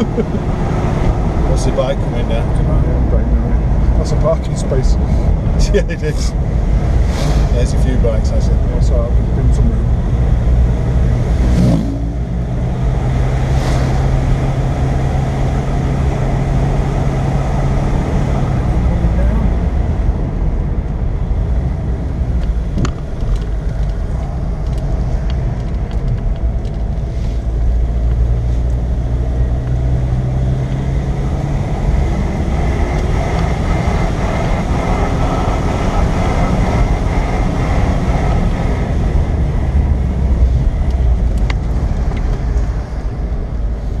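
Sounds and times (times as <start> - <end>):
car engine from inside cabin: 0.0 - 44.0.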